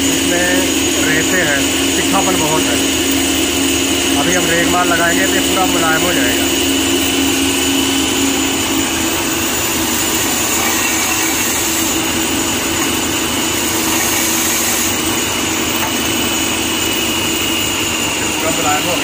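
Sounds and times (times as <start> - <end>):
wood lathe motor whining: 0.0 - 19.0
sandpaper sanding wood: 13.6 - 15.0.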